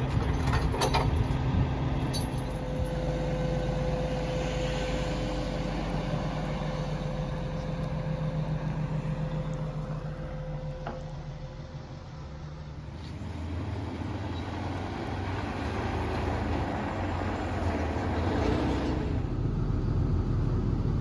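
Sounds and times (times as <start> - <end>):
constant whining tone: 0.0 - 15.2
diesel engine running: 0.0 - 21.0.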